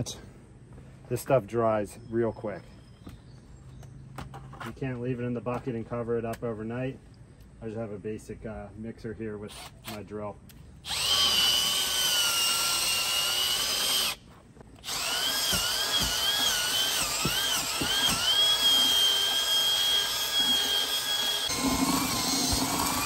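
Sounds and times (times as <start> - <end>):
power drill mixer whining: 10.8 - 14.2, 14.8 - 23.0.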